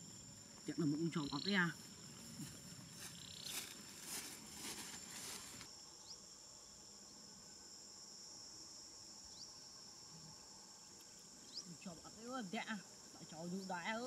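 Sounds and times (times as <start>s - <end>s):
high insect drone: 0.0s - 14.0s
bare feet swishing through dry grass: 2.2s - 5.7s.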